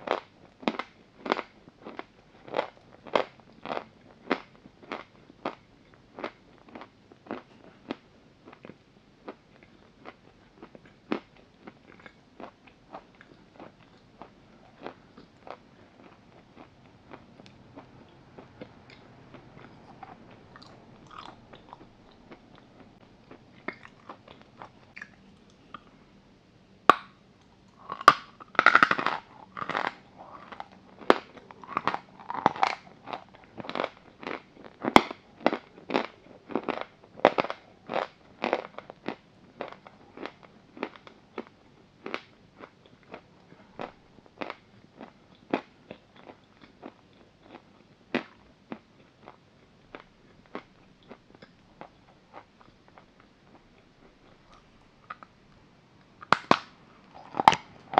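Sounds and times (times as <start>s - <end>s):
chalk crunching while chewed: 0.1s - 25.9s, 27.7s - 55.3s
faint mouth sounds: 17.1s - 26.1s.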